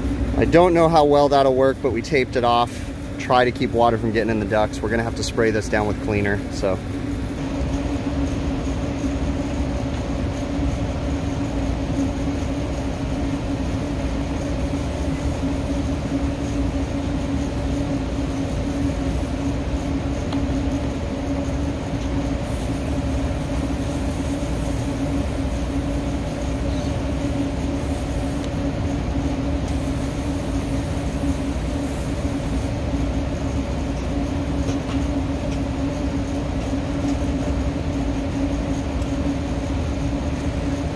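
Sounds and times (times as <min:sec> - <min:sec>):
hvac machinery humming: 0:00.0 - 0:40.9
hand sprayer hissing: 0:10.4 - 0:36.2.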